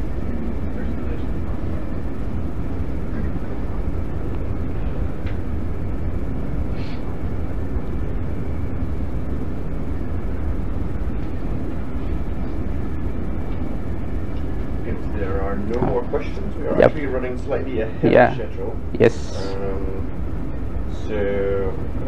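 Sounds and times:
low room rumble: 0.0s - 22.0s.

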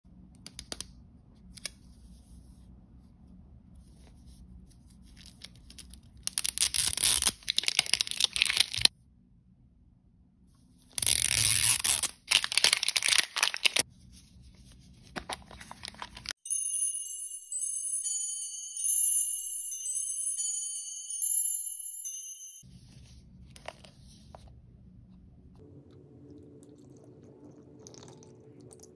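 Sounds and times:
plastic wrapper tearing and crinkling: 5.1s - 8.9s, 10.9s - 13.8s, 15.1s - 16.4s.

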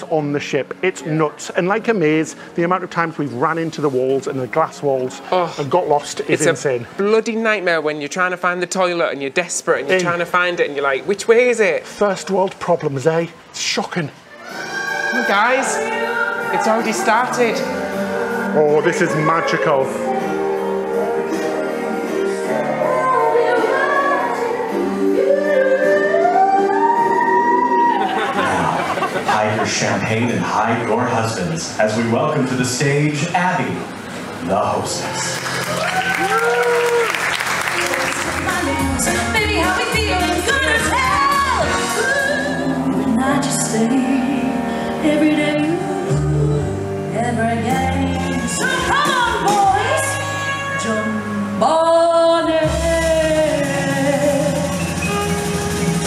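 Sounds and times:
woman singing into microphone: 14.5s - 28.1s, 38.2s - 55.2s
person singing long gliding notes: 17.6s - 28.3s.

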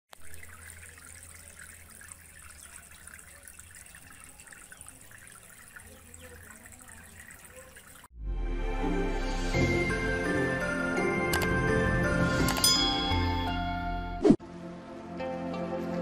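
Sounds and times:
fountain water splashing: 0.1s - 8.1s.

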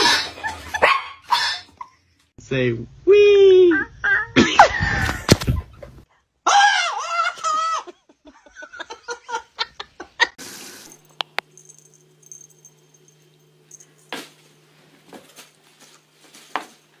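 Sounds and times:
person laughing: 4.3s - 10.4s
low hum: 10.7s - 17.0s.

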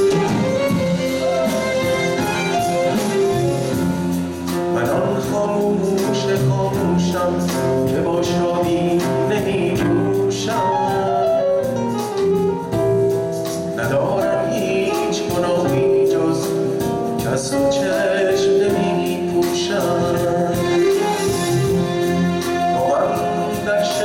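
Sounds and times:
live band playing pop song: 0.0s - 24.0s
man singing: 4.5s - 12.0s, 13.7s - 24.0s.

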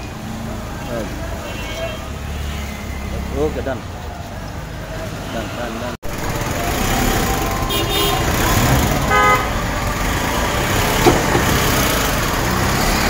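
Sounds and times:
street traffic: 0.0s - 13.0s
vehicle horn toots: 7.6s - 9.6s.

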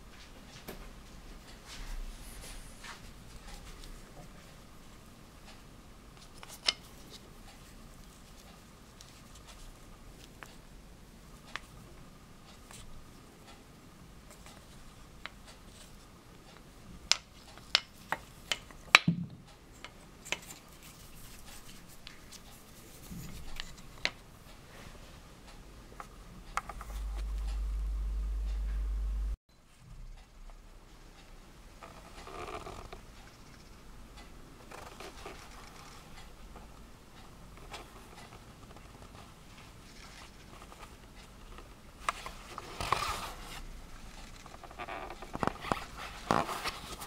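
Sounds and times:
low rumble: 26.6s - 30.3s.

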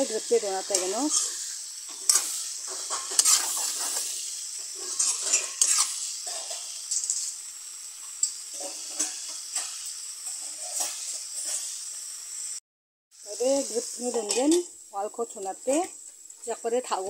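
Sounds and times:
spatula scraping and knocking wok: 0.0s - 12.1s, 13.6s - 14.7s
stems sizzling in oil: 0.0s - 17.0s.

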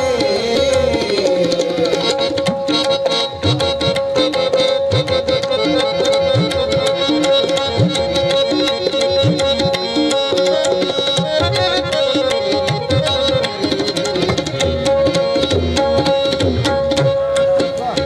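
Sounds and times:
tabla playing a busy rhythm: 0.0s - 18.0s.

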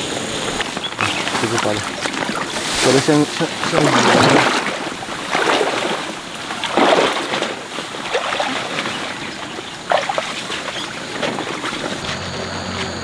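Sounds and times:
leaves swishing and rustling: 0.4s - 12.2s
splashy steps in mud: 0.6s - 12.2s.

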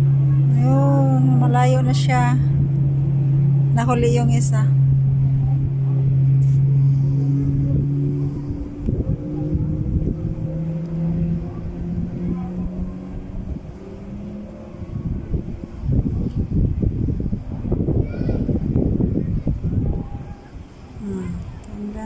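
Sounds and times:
motorboat engines droning: 0.0s - 22.0s
wind buffeting microphone: 0.0s - 22.0s.

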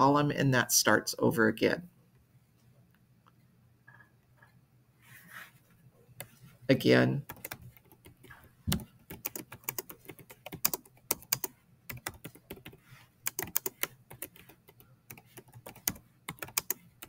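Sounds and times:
keyboard typing clicks: 7.3s - 16.8s.

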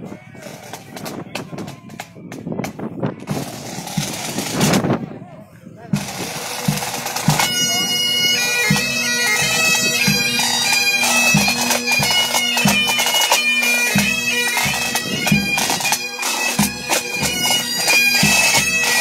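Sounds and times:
snare drums: 0.4s - 4.8s, 6.0s - 7.5s
bagpipes playing a melody: 6.0s - 19.0s.

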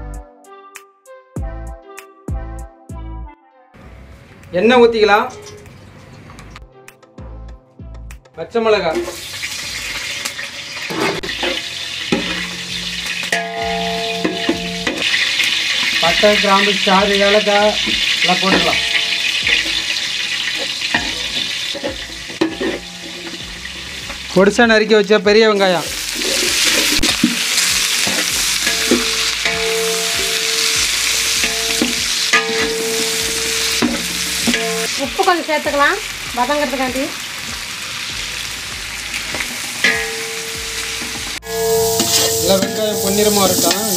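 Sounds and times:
chillies sizzling in hot oil: 8.8s - 43.9s
ladle scraping pot: 10.8s - 16.0s, 17.8s - 24.0s, 26.0s - 29.6s, 41.5s - 43.9s
ladle knocking on ringing pot: 13.3s - 15.1s, 17.9s - 19.9s, 28.6s - 34.9s.

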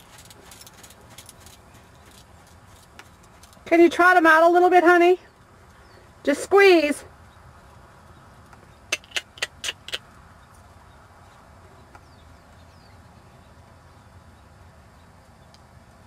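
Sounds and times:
faint outdoor background: 0.0s - 16.0s
tongue clicks: 8.9s - 10.1s.

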